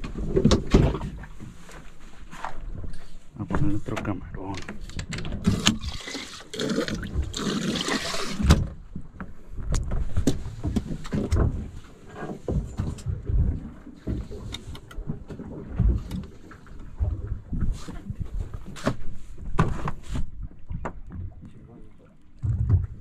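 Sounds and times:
water splashing and hissing: 0:05.5 - 0:08.5.

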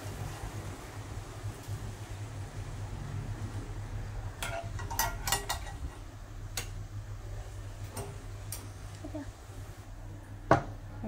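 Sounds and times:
steady low hum: 0:00.0 - 0:11.0
metal spoons clinking on saucepan: 0:04.4 - 0:06.0.

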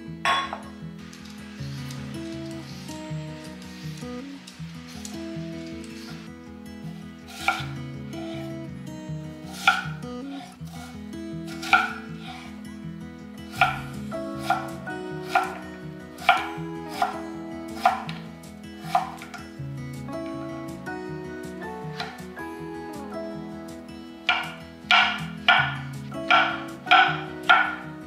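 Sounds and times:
soft background music: 0:00.0 - 0:28.0
knife cutting on wooden board: 0:07.3 - 0:08.4, 0:09.5 - 0:10.9, 0:11.5 - 0:12.5, 0:13.5 - 0:15.6, 0:16.2 - 0:18.2, 0:18.9 - 0:19.3.

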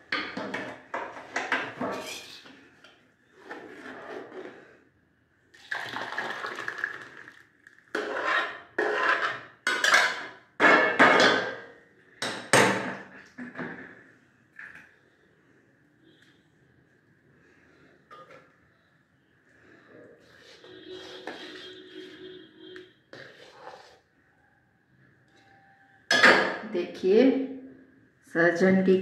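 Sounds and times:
ladle scraping metal pot: 0:07.9 - 0:10.3, 0:20.2 - 0:22.3, 0:23.1 - 0:24.1.

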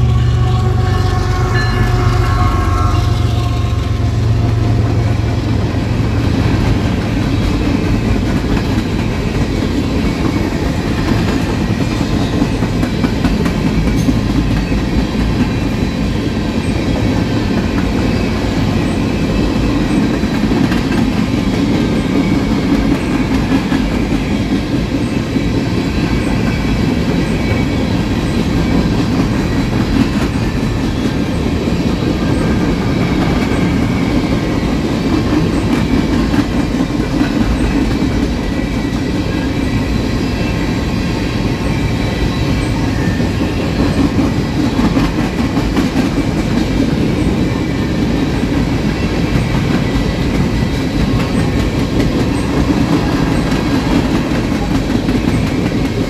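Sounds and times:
freight train rumbling past: 0:00.0 - 0:56.0
wheels clacking over rail joints: 0:16.6 - 0:40.5, 0:42.6 - 0:56.0.

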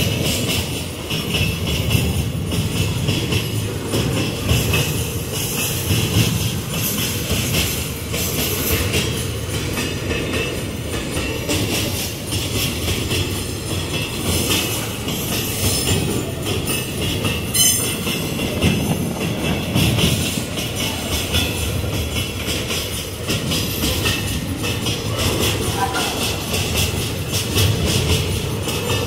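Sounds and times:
low train rumble: 0:00.0 - 0:29.0
train wheels clacking over rail joints: 0:00.0 - 0:29.0.

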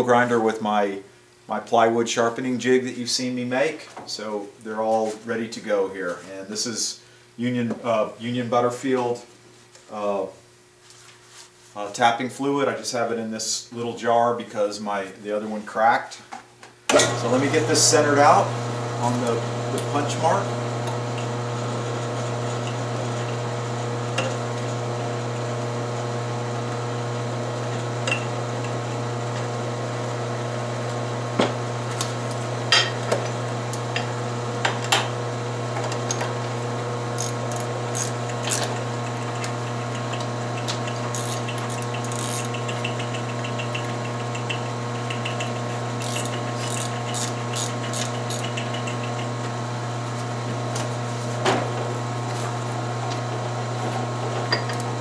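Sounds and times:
drill press motor running: 0:16.9 - 0:55.0.

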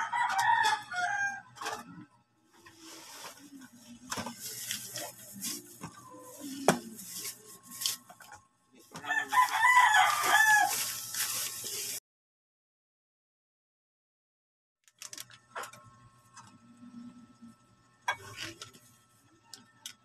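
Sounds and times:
rooster crowing: 0:00.0 - 0:01.6, 0:09.0 - 0:11.0.

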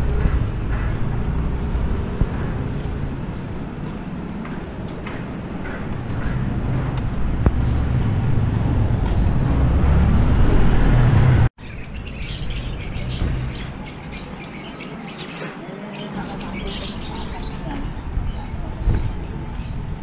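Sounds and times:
vehicle rumbling in traffic: 0:00.0 - 0:20.0
small caged birds chirping: 0:11.1 - 0:20.0.

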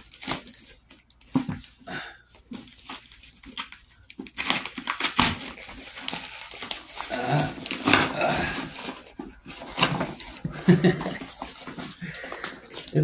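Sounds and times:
paper wrapping tearing and crinkling: 0:00.0 - 0:13.0
knife slitting packing tape: 0:04.3 - 0:09.0.

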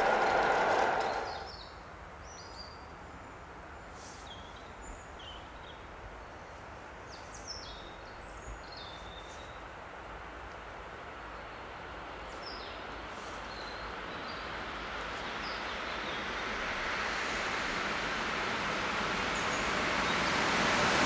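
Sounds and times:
outdoor hush: 0:00.0 - 0:01.6
passing train: 0:00.0 - 0:02.1, 0:09.0 - 0:21.0.

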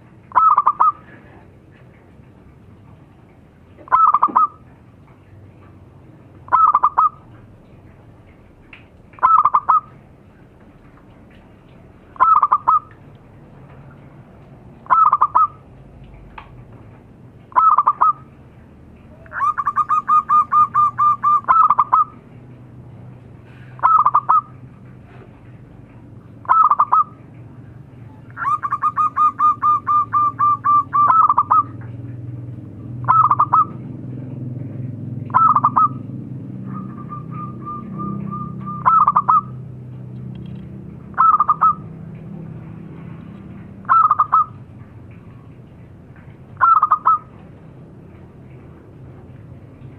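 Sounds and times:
dove cooing: 0:00.3 - 0:01.4, 0:03.8 - 0:04.7, 0:06.5 - 0:07.3, 0:09.2 - 0:10.0, 0:12.2 - 0:12.9, 0:14.8 - 0:15.6, 0:17.5 - 0:18.4, 0:19.0 - 0:22.2, 0:23.8 - 0:25.3, 0:26.4 - 0:27.3, 0:28.2 - 0:31.9, 0:33.0 - 0:33.8, 0:35.3 - 0:39.6, 0:41.1 - 0:41.9, 0:43.8 - 0:44.6, 0:46.6 - 0:47.4.

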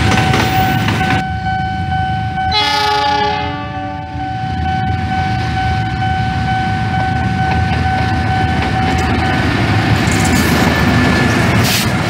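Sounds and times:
deep rumble of train: 0:00.0 - 0:12.0
locomotive air horn: 0:02.5 - 0:04.4.

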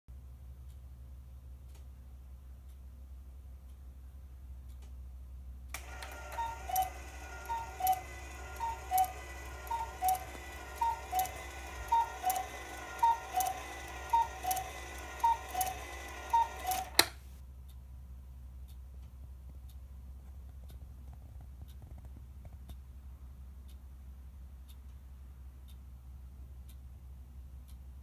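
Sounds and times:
clock motor whirring: 0:05.7 - 0:17.1
clock mechanism clicks: 0:05.7 - 0:17.2
cuckoo clock call: 0:05.8 - 0:17.1.

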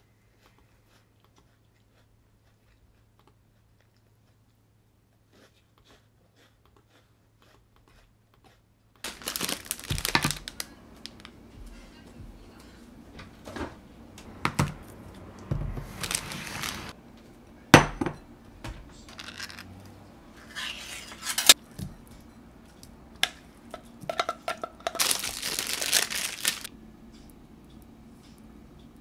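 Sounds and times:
rustling: 0:09.0 - 0:11.8, 0:14.2 - 0:17.0, 0:24.9 - 0:26.7
glass bowl clinking: 0:17.8 - 0:18.3.

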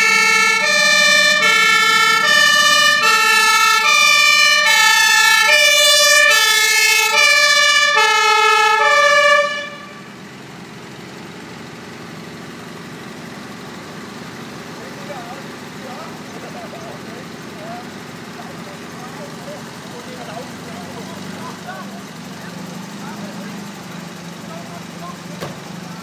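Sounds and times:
fire engine engine running: 0:00.0 - 0:26.0
two-tone air horn: 0:08.0 - 0:10.1.

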